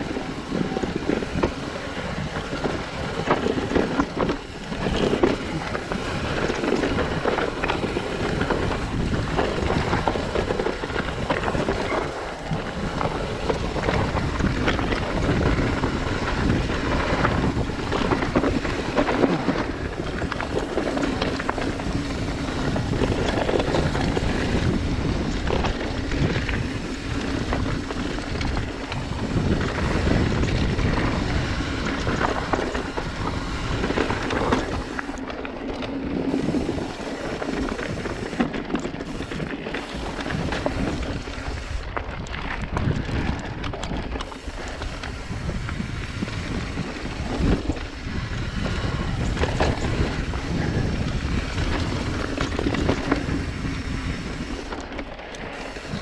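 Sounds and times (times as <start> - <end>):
bike rattling over bumps: 0.0 - 56.0
tyres on dirt and stones: 0.0 - 56.0
wind on microphone: 0.0 - 56.0.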